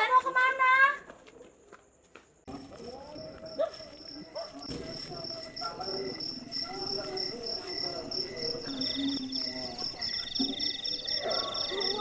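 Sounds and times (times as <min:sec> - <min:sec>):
crickets chirping: 0:00.0 - 0:12.0
fast insect trill: 0:03.9 - 0:12.0.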